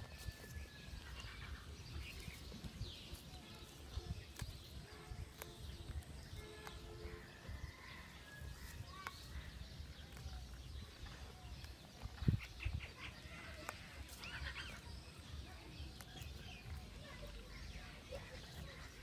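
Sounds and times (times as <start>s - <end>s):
bird chirps: 0.0s - 19.0s.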